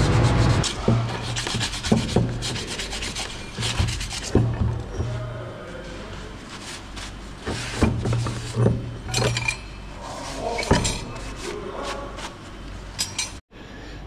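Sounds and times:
metal tools clinking: 9.1 - 9.9, 12.9 - 13.4.

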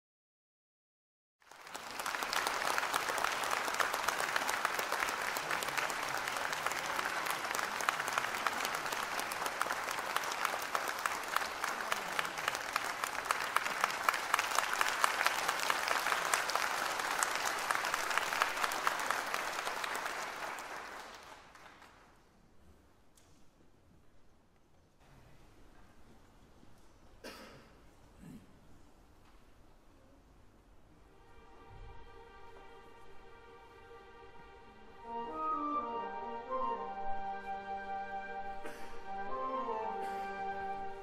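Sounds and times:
audience applauding: 1.4 - 22.2.

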